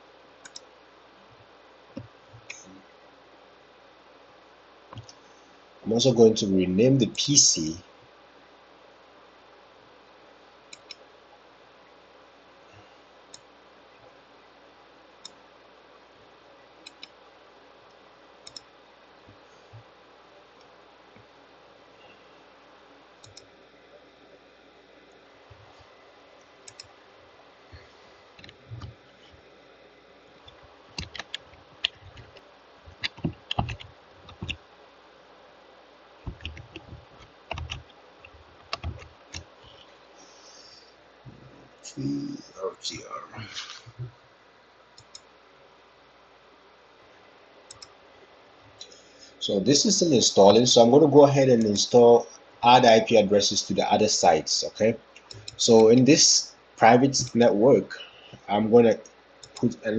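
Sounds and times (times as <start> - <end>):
faint steady hiss: 0.0 - 59.9
computer mouse buttons clicking: 0.4 - 0.7, 10.7 - 11.0, 16.8 - 17.2, 18.4 - 18.7, 23.2 - 23.5, 26.6 - 26.9, 30.4 - 34.6, 36.3 - 39.8, 47.7 - 47.9, 55.2 - 56.0, 59.4 - 59.7.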